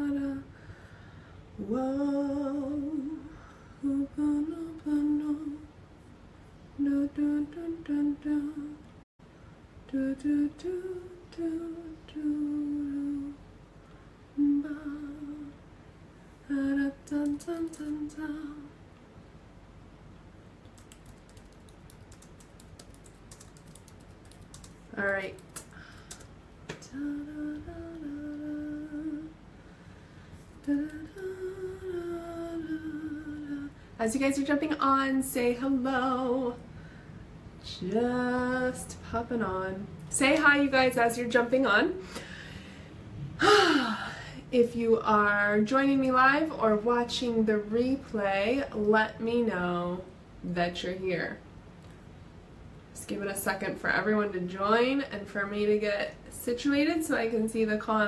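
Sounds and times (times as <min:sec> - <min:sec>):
woman humming: 0:26.8 - 0:29.3.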